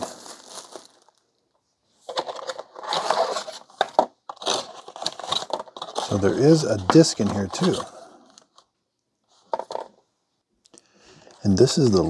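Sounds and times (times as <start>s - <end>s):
plastic shrink-wrap crinkling: 0.0s - 1.4s.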